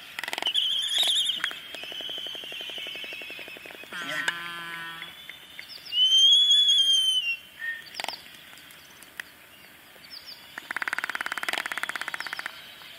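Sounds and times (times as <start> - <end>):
albatross whistling call: 0.4 - 5.2, 5.9 - 7.9.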